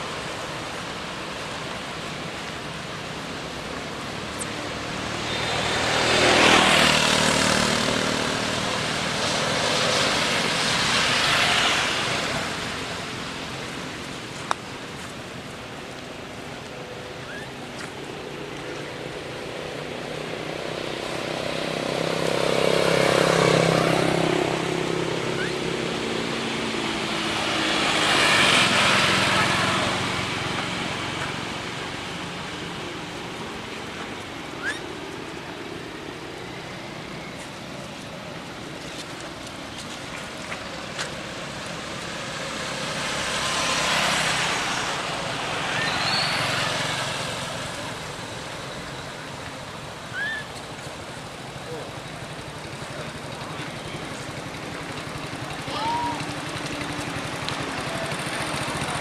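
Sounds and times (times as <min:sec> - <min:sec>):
vehicles passing on road: 0:00.0 - 0:59.0.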